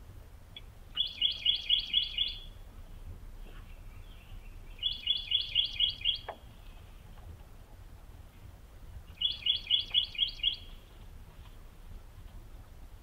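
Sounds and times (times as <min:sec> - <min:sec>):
bird chirping: 0:00.6 - 0:02.6, 0:03.4 - 0:07.0, 0:09.1 - 0:11.0.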